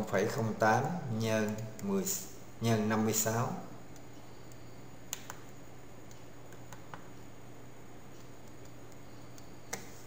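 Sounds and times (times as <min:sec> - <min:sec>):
low electrical hum: 0:00.0 - 0:10.0
faint sharp clicks and taps: 0:03.9 - 0:07.3.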